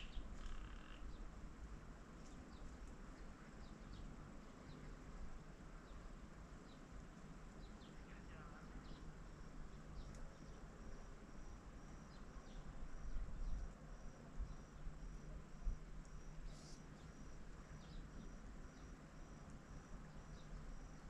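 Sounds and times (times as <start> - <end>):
insect chirping: 0.0 - 1.1, 8.8 - 21.0.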